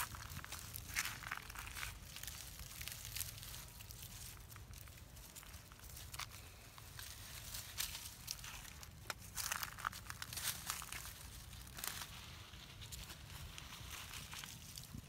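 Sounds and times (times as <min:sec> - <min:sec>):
dry leaves crackling and rustling: 0:00.0 - 0:15.0.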